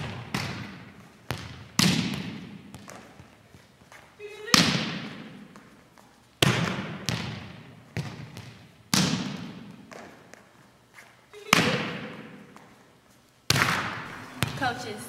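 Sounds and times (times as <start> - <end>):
volleyball spiked hitting floor: 0.0 - 3.4, 4.5 - 5.8, 6.4 - 10.5, 11.4 - 12.7, 13.5 - 14.6.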